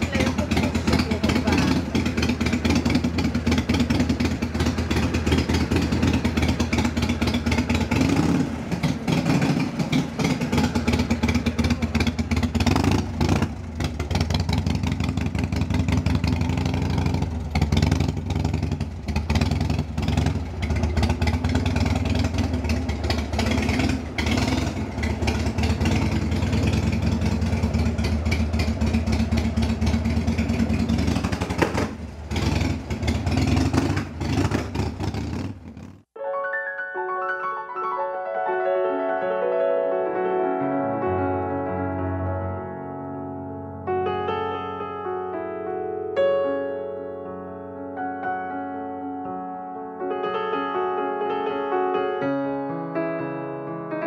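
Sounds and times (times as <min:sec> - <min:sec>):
motorcycle engine idling: 0:00.0 - 0:36.1.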